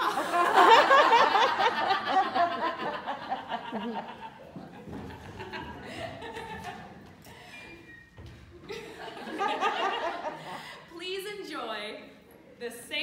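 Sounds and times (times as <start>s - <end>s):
faint room murmur: 0.6s - 11.0s.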